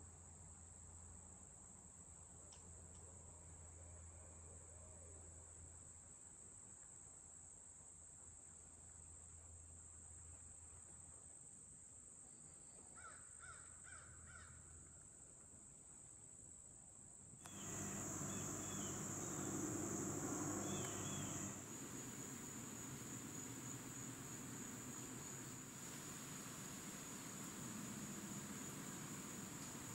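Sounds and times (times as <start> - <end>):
crickets droning: 17.2 - 29.9
faint high chirps: 17.4 - 29.9.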